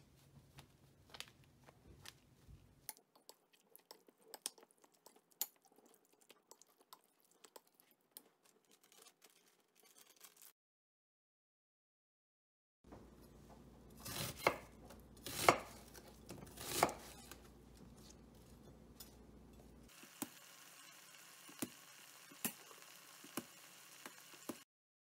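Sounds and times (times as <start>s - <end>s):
knife chopping on board: 14.0s - 17.4s.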